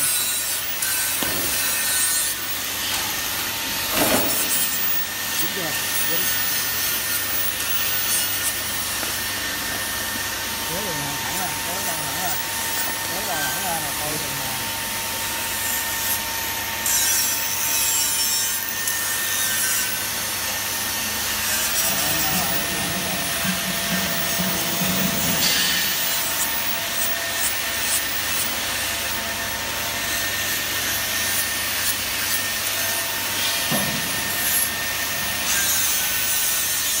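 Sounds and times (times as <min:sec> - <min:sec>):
vacuum packing machine pump humming: 0:20.1 - 0:31.2.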